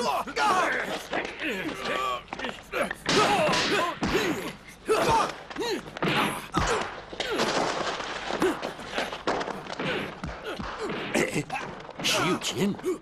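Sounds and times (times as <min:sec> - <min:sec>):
men grunting and shouting: 0:00.0 - 0:07.6.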